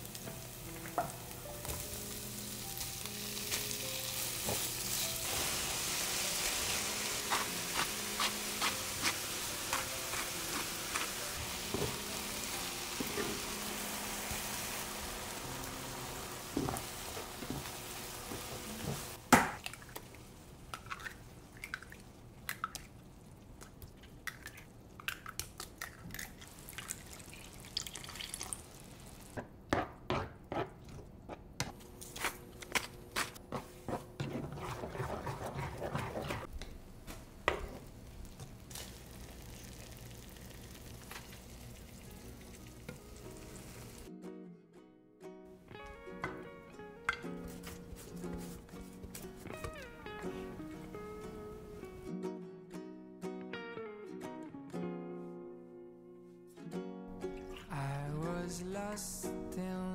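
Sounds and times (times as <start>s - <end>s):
food sizzling in oil: 0.0s - 19.2s, 26.5s - 29.4s, 37.9s - 44.1s
wooden spatula stirring and tapping: 33.4s - 36.7s.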